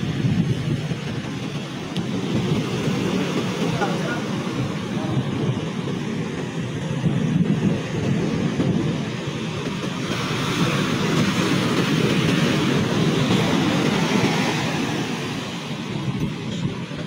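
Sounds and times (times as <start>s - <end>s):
rough sea surf breaking: 0.0s - 17.0s.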